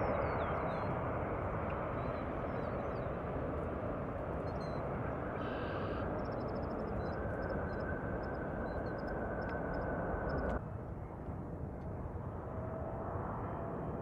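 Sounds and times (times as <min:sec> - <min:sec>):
jet engines rumbling: 0:00.0 - 0:10.6
high whine: 0:04.4 - 0:10.6.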